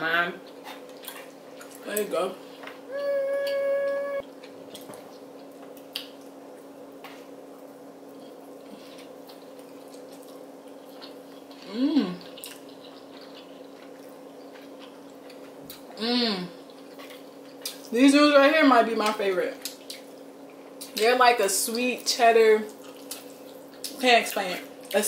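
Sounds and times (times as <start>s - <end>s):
low hum: 2.9s - 4.2s
person humming mmm: 2.9s - 4.2s, 11.7s - 12.2s, 16.0s - 16.5s
wet chewing and slurping: 8.8s - 16.0s, 16.6s - 17.9s.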